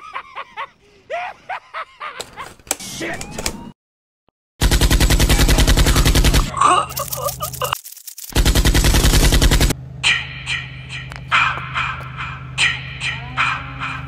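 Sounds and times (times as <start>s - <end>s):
automatic gunfire: 4.6s - 6.5s, 8.3s - 9.8s.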